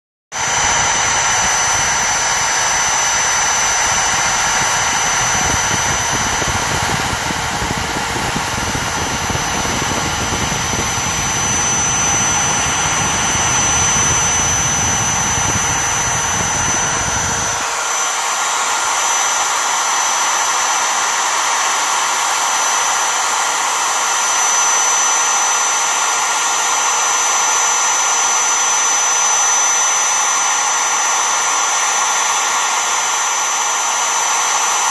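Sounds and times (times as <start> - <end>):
low rumble: 0.4 - 17.7
router spindle high whine: 0.4 - 34.9.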